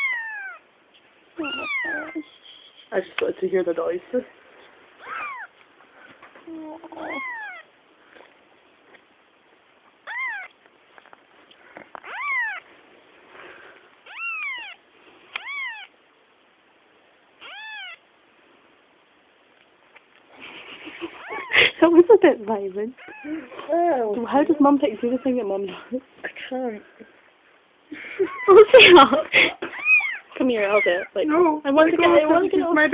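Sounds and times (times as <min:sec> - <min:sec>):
kitten meowing: 0:00.0 - 0:00.6, 0:01.4 - 0:02.3, 0:05.0 - 0:05.6, 0:06.8 - 0:07.7, 0:10.0 - 0:10.6, 0:12.0 - 0:12.7, 0:14.0 - 0:16.0, 0:17.4 - 0:18.0, 0:21.2 - 0:21.6, 0:23.0 - 0:23.5, 0:29.8 - 0:31.1.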